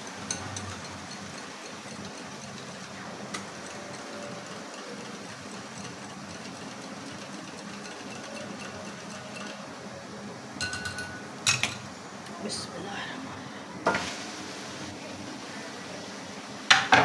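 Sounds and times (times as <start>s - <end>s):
whisk clattering in a ceramic bowl: 0.0s - 9.8s, 10.6s - 11.8s.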